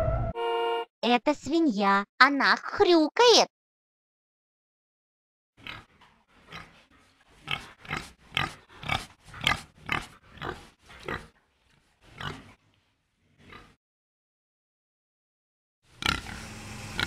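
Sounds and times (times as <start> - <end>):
pig grunting: 5.6 - 11.4, 12.0 - 12.6, 13.3 - 13.8, 16.0 - 17.0.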